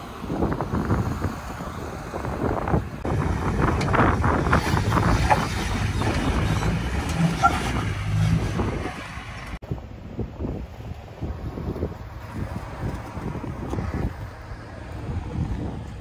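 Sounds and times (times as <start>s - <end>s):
engine pulling at low revs: 0.0s - 9.6s
wind noise: 0.0s - 16.0s
tyres rumbling on rock: 3.0s - 9.6s.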